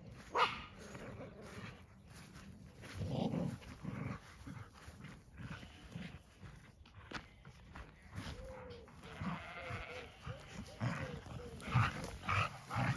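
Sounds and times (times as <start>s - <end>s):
dog growling: 10.2s - 12.9s.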